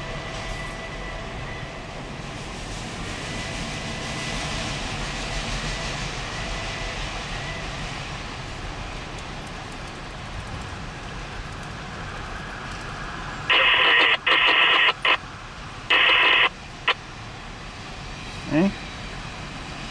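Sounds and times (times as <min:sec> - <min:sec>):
steel wheels rolling on rails: 0:07.8 - 0:13.8.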